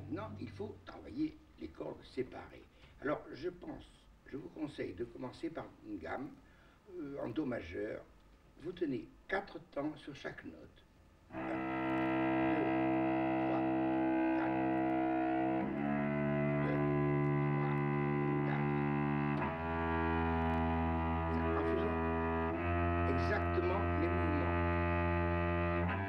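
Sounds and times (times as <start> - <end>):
cello bowing sustained notes: 0.0 - 0.8, 11.3 - 26.0.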